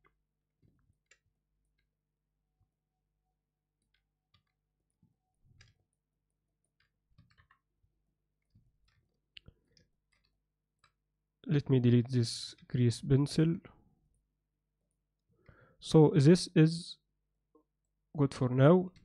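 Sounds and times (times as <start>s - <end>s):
computer keyboard and mouse clicks: 6.8s - 7.6s.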